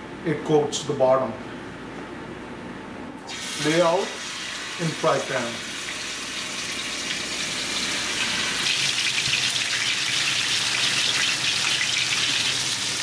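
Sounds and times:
fish sizzling in a frying pan: 5.6s - 13.0s.

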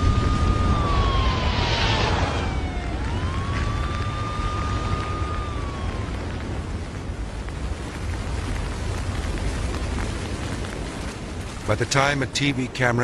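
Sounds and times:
siren wailing: 0.0s - 7.4s
low rumble: 0.0s - 11.9s.

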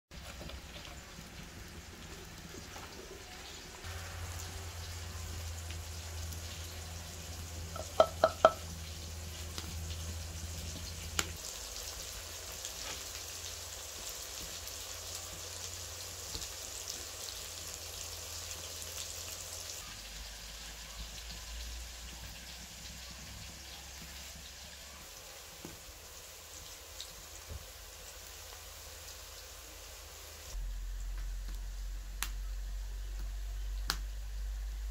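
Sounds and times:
onions sizzling in hot oil: 0.1s - 30.6s.

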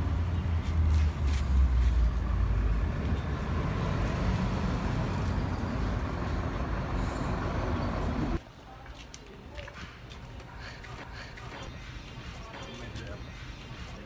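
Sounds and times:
steady traffic hum: 0.0s - 14.0s.

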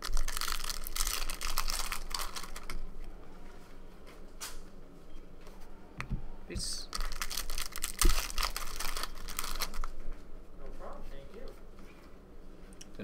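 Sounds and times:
foil wrapper tearing and crinkling: 0.0s - 2.8s, 6.9s - 10.0s.

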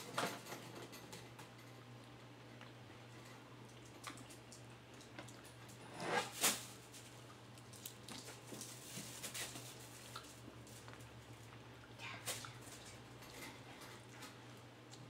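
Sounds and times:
chewing with wet mouth clicks: 3.6s - 5.5s.

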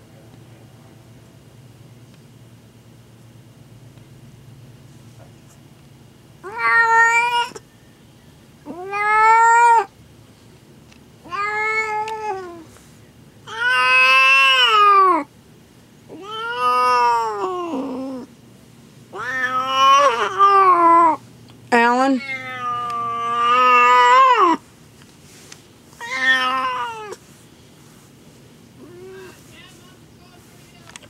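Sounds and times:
cat yowling: 6.4s - 7.6s, 8.6s - 9.9s, 11.2s - 12.6s, 13.5s - 15.3s, 16.1s - 18.3s, 19.1s - 21.2s, 22.1s - 24.6s, 26.0s - 27.2s, 28.8s - 29.4s.

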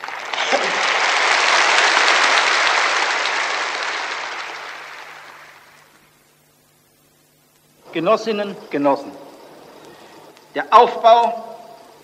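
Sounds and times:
large audience applauding: 0.0s - 6.2s.

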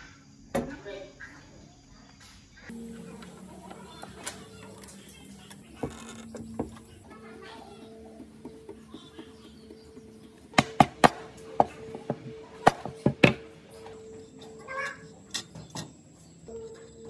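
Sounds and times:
tools knocking on metal tray: 3.2s - 16.0s.

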